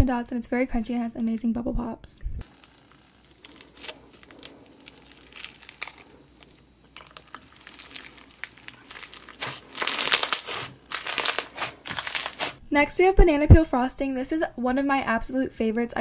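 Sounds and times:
floam crunching and popping: 2.4 - 12.6.

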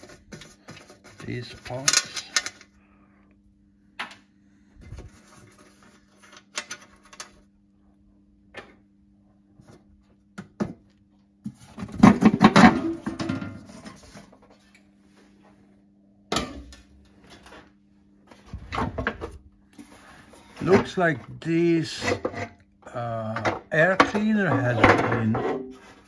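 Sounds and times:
metal lid clattering and scraping: 11.8 - 14.2, 23.5 - 26.0.

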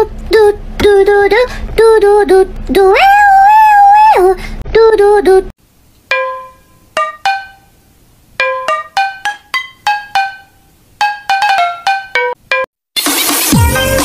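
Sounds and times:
plucked note melody: 6.1 - 7.8, 8.4 - 12.7.

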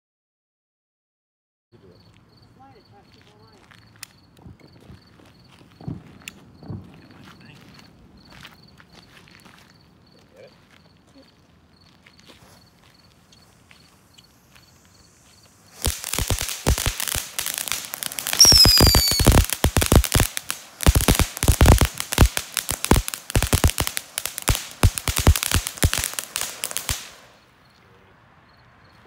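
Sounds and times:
firework crackling and popping: 3.3 - 8.4, 13.1 - 27.4
falling whistle: 18.3 - 19.5.

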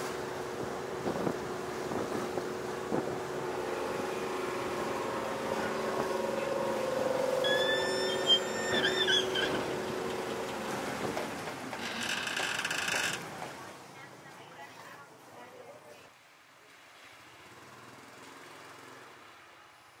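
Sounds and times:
ferry engine drone: 0.0 - 13.6
high-pitched wavering squeal: 3.6 - 10.4.

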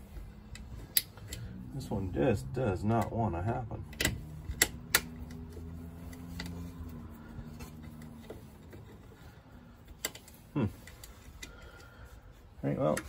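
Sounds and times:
low steady hum: 0.0 - 13.0
metal clicks of screw being worked: 3.9 - 7.0.

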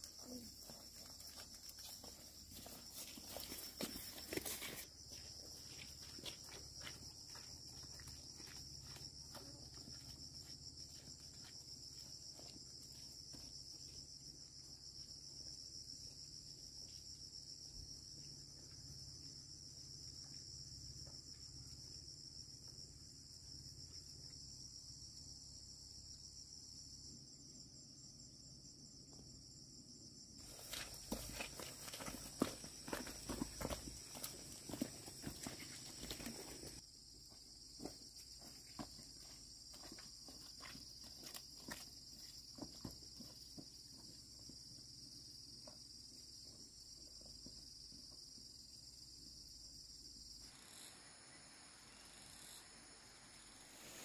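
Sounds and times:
footsteps on muddy ground: 0.0 - 14.0, 30.4 - 44.1.

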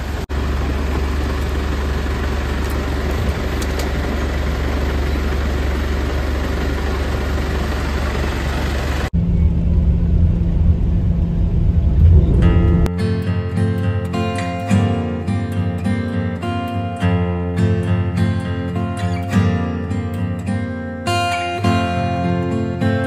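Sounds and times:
uneven engine rumble: 0.0 - 12.9
vehicle engine and road noise: 0.0 - 12.9.

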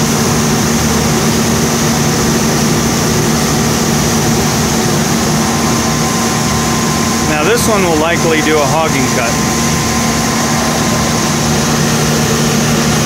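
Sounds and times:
machine hum with high whine: 0.0 - 13.0.

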